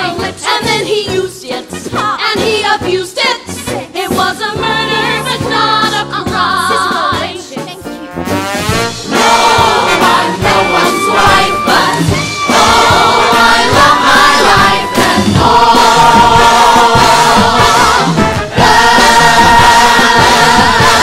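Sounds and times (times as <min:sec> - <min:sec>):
live band with steady beat: 0:05.3 - 0:20.5
cast singing held notes: 0:09.1 - 0:18.0.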